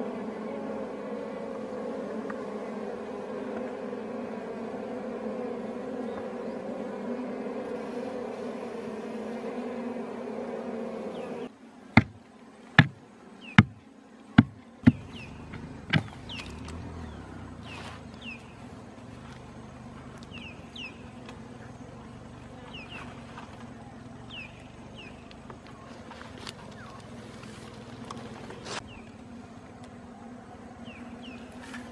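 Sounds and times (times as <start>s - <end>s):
honeybees buzzing: 0.0s - 31.9s
bamboo pole striking dry earth: 12.0s - 12.2s, 14.4s - 16.5s
digging and scraping: 14.4s - 16.8s, 25.3s - 28.9s.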